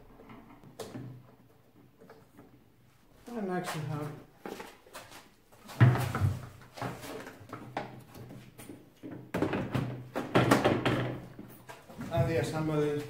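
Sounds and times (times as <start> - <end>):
hard plastic knocks and clatter: 5.8 - 12.6.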